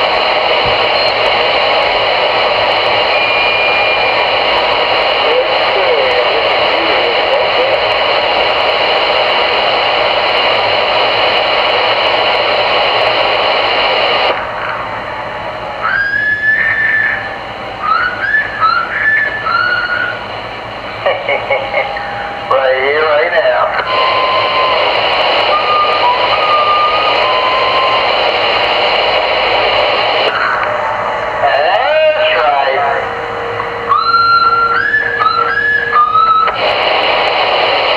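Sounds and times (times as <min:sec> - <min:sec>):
radio static hiss: 0:00.0 - 0:37.9
faint whistling tones: 0:03.0 - 0:04.2, 0:15.8 - 0:20.2, 0:23.9 - 0:28.2, 0:33.8 - 0:36.6.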